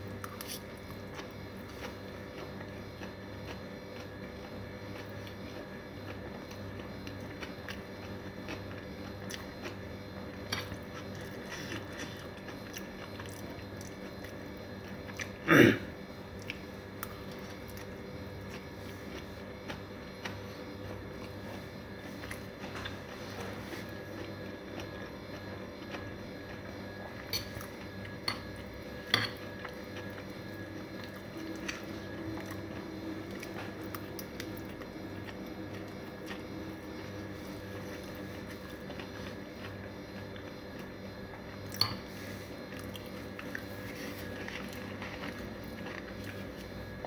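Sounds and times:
chewing noodles: 0.2 - 15.4, 16.2 - 47.0.

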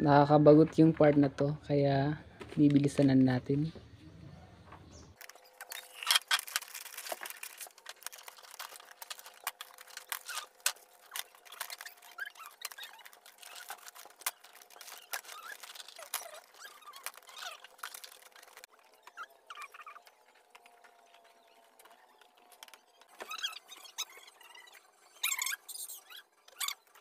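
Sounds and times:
dried sea cucumbers clicking: 5.2 - 22.8
paper rustling: 5.2 - 27.0.

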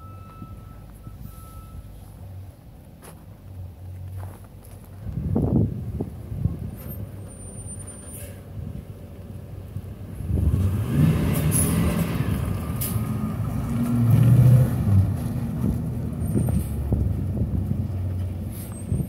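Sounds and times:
bus engine revving: 9.5 - 19.0.

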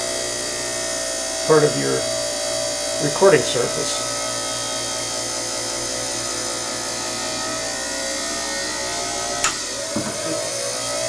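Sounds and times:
shaving machine whirring: 0.0 - 11.0.

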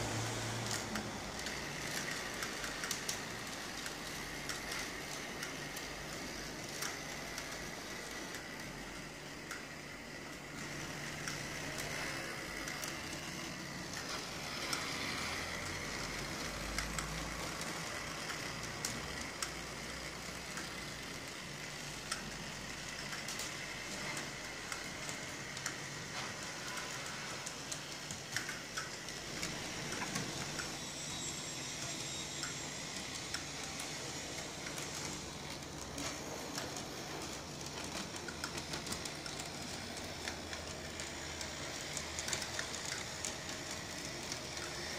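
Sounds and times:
model motors whirring: 0.0 - 44.9
wheels clicking over rail joints: 31.8 - 44.9.

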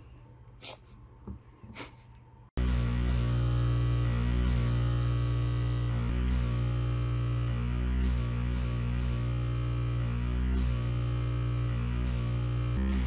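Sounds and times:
airbrush compressor hum: 2.6 - 13.0
airbrush spraying hiss: 2.6 - 13.0.

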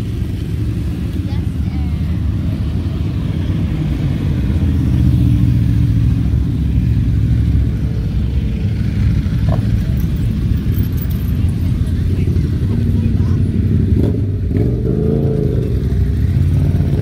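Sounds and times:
motorcycles and cars passing: 0.0 - 17.0.

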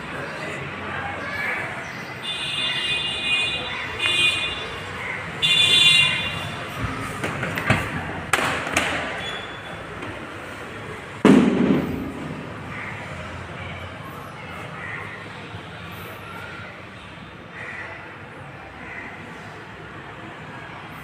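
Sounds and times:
sharp clicks and knocks: 7.2 - 9.2
heavy thud: 11.2 - 12.6.

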